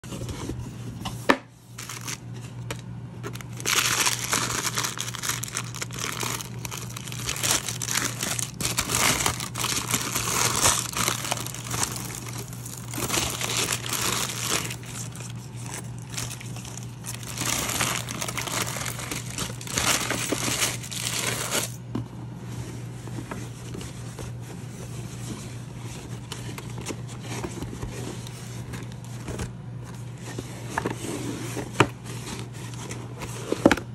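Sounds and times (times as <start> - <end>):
steady low hum: 0.0 - 33.9
tissue paper crinkling: 1.7 - 2.5, 3.3 - 21.8
cloth bag rustling: 3.4 - 21.8.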